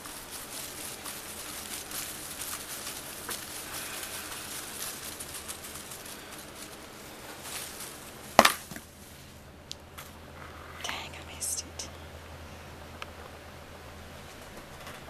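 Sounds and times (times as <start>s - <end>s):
cat scratching fabric toy: 0.0s - 8.8s.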